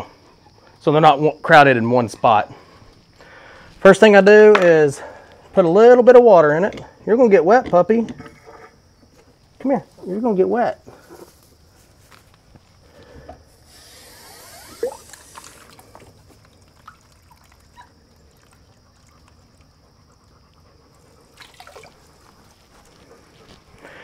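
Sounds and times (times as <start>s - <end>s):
water trickling into plastic trough: 14.6s - 19.7s, 21.3s - 22.0s.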